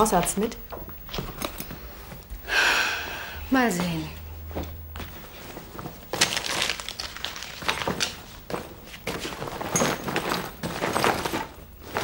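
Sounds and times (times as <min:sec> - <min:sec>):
rustling through belongings: 0:04.5 - 0:12.0
items knocking and clinking: 0:05.7 - 0:12.0.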